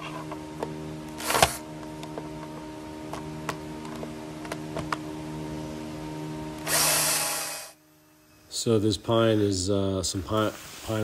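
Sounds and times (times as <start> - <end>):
power drill driving screw into wood: 1.2 - 1.6, 6.6 - 7.8.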